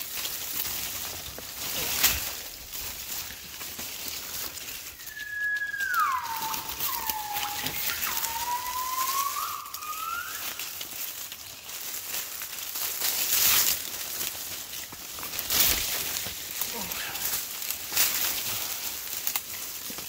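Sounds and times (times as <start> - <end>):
light crackling: 1.9 - 20.0
gibbon whistled call: 5.0 - 10.8.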